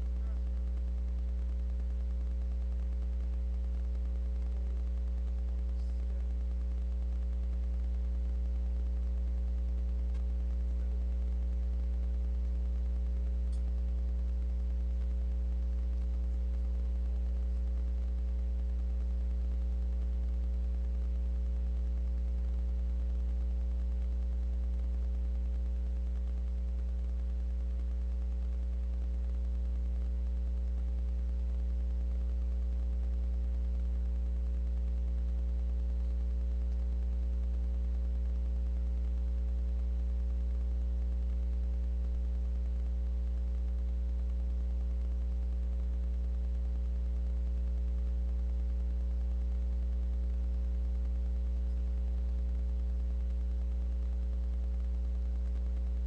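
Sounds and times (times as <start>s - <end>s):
faint tick: 0.0s - 15.2s
low electrical hum: 0.0s - 56.0s.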